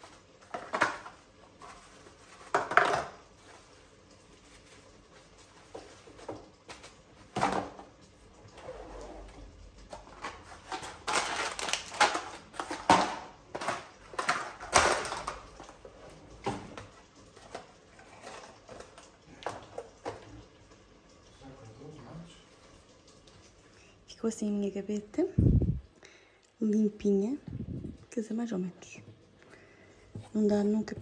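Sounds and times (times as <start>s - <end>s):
plastic bag crinkling: 10.3s - 15.6s.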